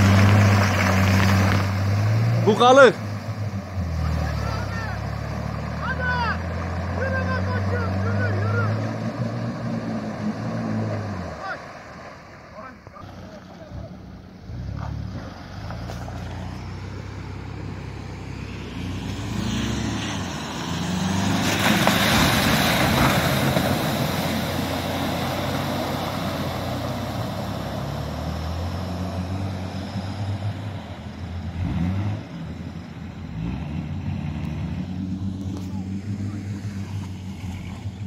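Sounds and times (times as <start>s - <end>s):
water and mud splashing: 0.0s - 13.5s, 18.3s - 31.2s
off-road engines revving: 0.0s - 38.0s.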